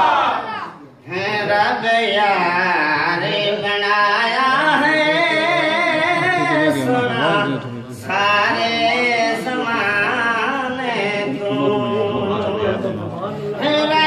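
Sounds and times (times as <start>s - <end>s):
man singing into microphone: 1.0s - 14.0s.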